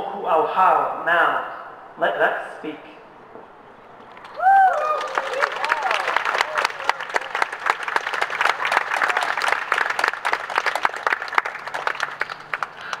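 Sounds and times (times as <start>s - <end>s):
small crowd applauding: 3.0s - 13.0s.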